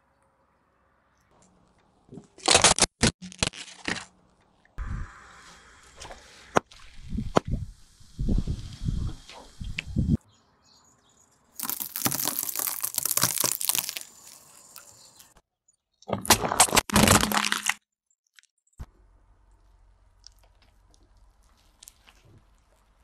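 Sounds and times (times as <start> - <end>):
tyre crushing plastic objects: 11.6 - 14.4, 16.2 - 17.8.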